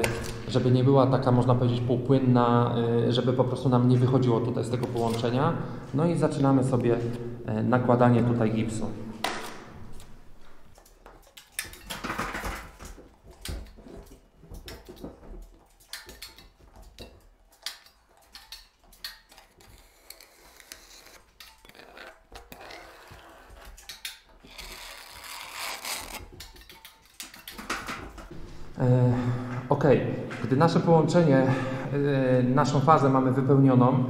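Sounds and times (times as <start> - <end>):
putty knife scraping compound: 10.7 - 28.4.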